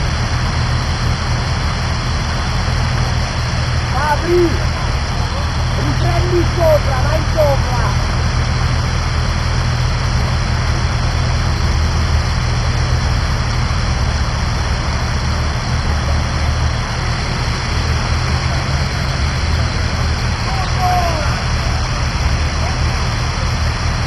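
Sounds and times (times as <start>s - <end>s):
engine low drone: 0.0s - 24.0s
waterfall rushing: 13.4s - 24.0s.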